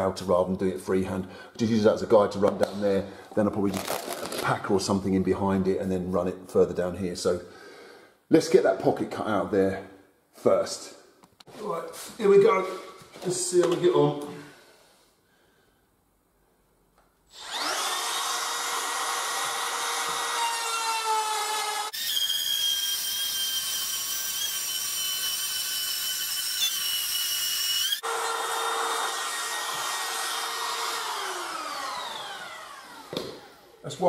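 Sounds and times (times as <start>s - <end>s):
trim router whining: 17.3s - 34.0s.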